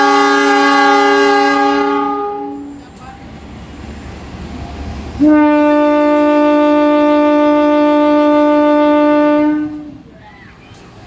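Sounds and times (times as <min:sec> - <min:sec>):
train horn blast: 0:00.0 - 0:02.8, 0:05.2 - 0:10.1.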